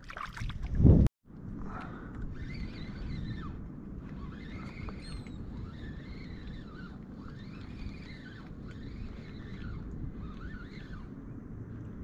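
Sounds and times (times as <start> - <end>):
wind rumble on microphone: 0.0 - 12.0
kayak pedal drive squeaking: 2.4 - 11.2.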